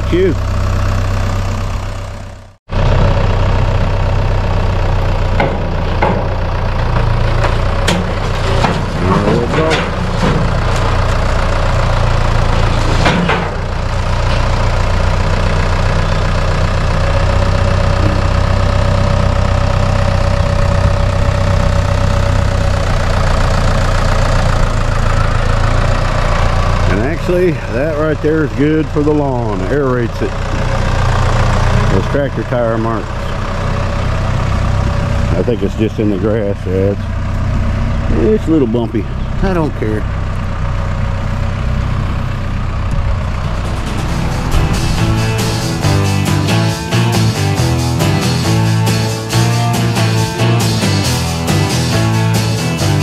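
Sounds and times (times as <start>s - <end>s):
tractor diesel engine running: 0.0s - 53.0s
clanks and knocks: 5.4s - 11.2s, 12.6s - 14.5s, 42.9s - 47.2s.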